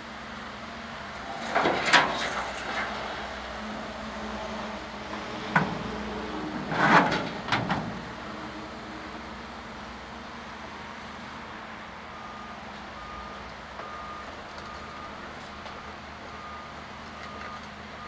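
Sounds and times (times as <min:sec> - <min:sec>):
metallic clunks and creaks: 0:01.4 - 0:03.0, 0:05.1 - 0:08.1.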